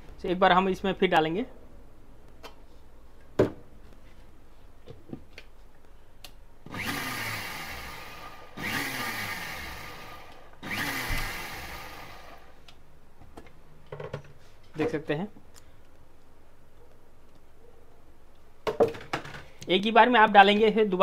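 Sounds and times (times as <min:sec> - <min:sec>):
mixer grinder motor: 0:06.7 - 0:12.6.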